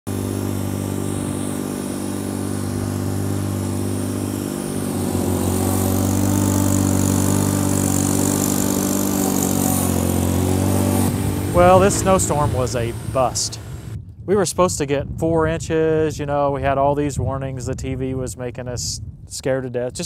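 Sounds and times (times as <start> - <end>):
tractor engine running: 0.0 - 14.0.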